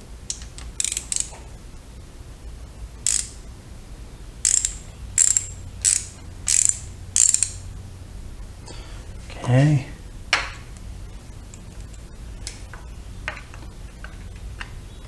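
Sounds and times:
socket ratchet clicking: 0:00.3 - 0:01.4, 0:03.0 - 0:03.4, 0:04.4 - 0:07.6.

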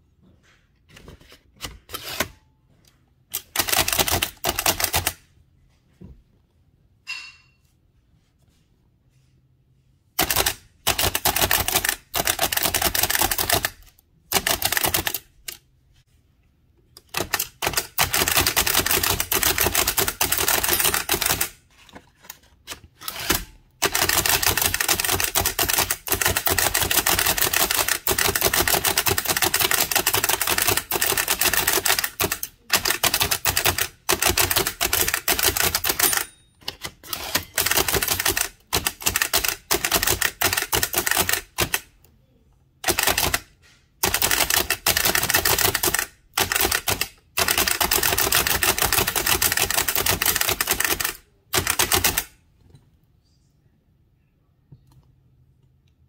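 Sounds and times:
typewriter keystrokes clattering: 0:03.3 - 0:05.2, 0:10.2 - 0:15.6, 0:17.0 - 0:21.6, 0:23.1 - 0:41.8, 0:42.8 - 0:52.3.

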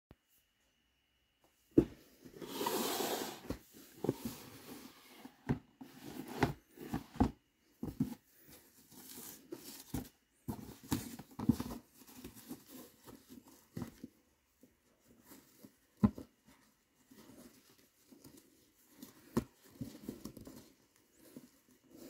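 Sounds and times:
gloves brushing cardboard box: 0:02.4 - 0:07.1.

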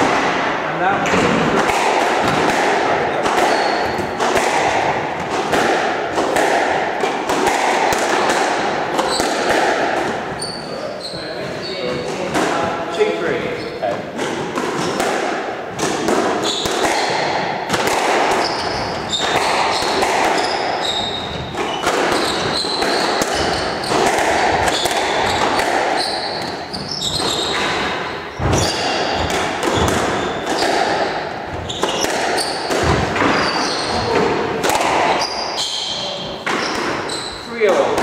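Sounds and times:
squash ball hits: 0:00.0 - 0:10.6, 0:11.5 - 0:13.0, 0:13.8 - 0:38.0
shoes squeaking on wooden floor: 0:03.1 - 0:04.4, 0:08.9 - 0:12.3, 0:13.4 - 0:15.0, 0:16.4 - 0:17.2, 0:18.3 - 0:37.8.

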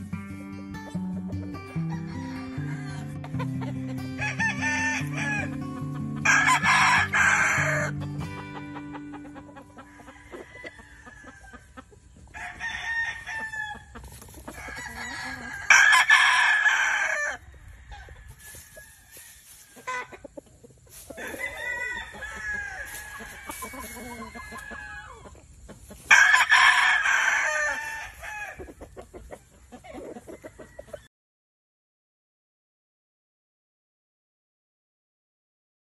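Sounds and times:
chicken clucks: 0:00.3 - 0:31.1
rooster crowing: 0:01.7 - 0:03.4, 0:04.1 - 0:05.6, 0:06.2 - 0:08.0, 0:09.6 - 0:11.7, 0:12.3 - 0:13.9, 0:14.5 - 0:20.2, 0:21.1 - 0:25.3, 0:26.1 - 0:28.7.

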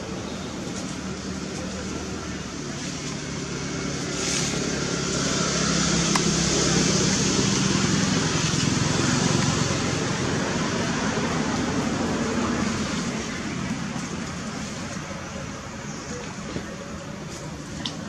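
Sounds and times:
motor engine humming: 0:00.0 - 0:18.0.

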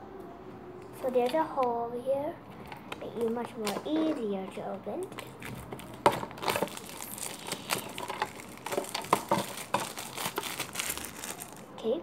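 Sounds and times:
plastic wrapper crinkling: 0:05.0 - 0:11.8.

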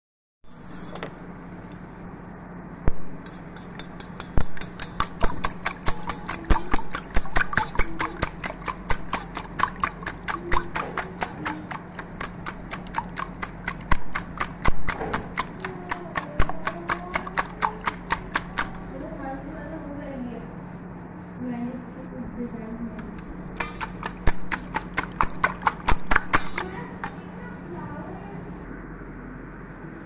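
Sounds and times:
whisk clicking in metal bowl: 0:03.2 - 0:18.9, 0:23.6 - 0:27.2.

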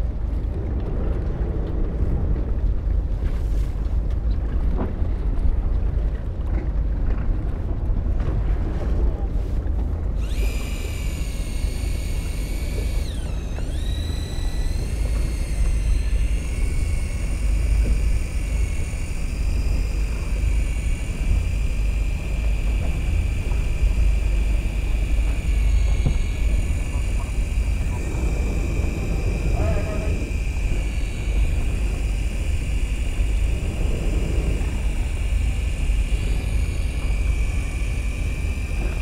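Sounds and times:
boat engine rumble: 0:00.0 - 0:39.0
electric fishing reel motor whining: 0:10.2 - 0:39.0.

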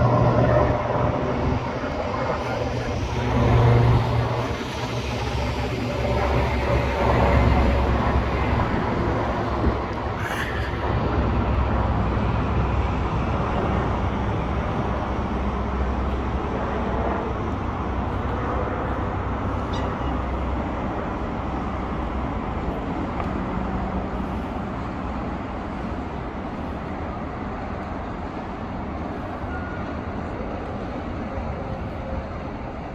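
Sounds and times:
helicopter rotor rumble: 0:00.0 - 0:32.9.

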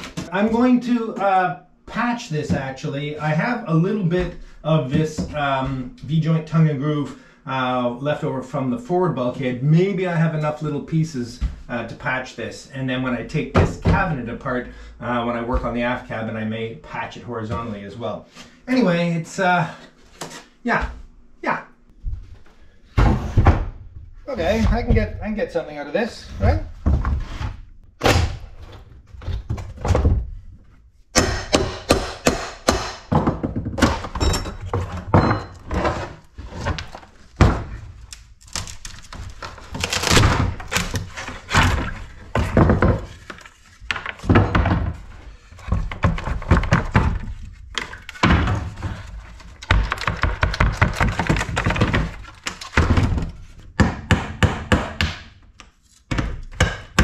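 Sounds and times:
wooden boards knocked apart: 0:32.8 - 0:55.3.

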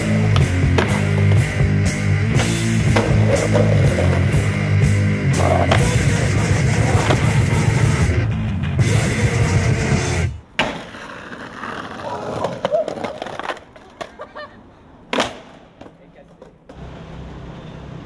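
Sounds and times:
skateboard clacks: 0:00.0 - 0:04.6, 0:05.4 - 0:08.0, 0:10.5 - 0:14.3, 0:15.1 - 0:16.8
music: 0:00.0 - 0:10.4
skateboard wheels rolling on pavement: 0:00.0 - 0:18.0.

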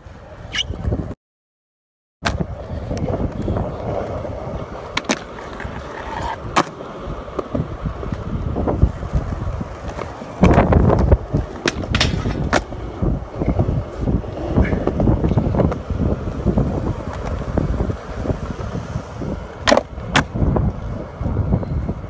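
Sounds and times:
skateboard wheels rolling on concrete: 0:00.0 - 0:01.2, 0:02.2 - 0:22.0
skateboard clacks popping and landing: 0:02.2 - 0:04.2, 0:04.8 - 0:08.3, 0:09.1 - 0:12.8, 0:19.6 - 0:20.5
skateboard grinding on ledge: 0:03.1 - 0:21.3.

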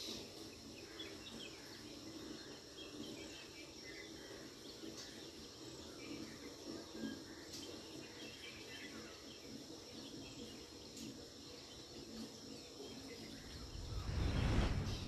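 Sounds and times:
insect drone: 0:00.0 - 0:15.0
low rush: 0:13.4 - 0:15.0.

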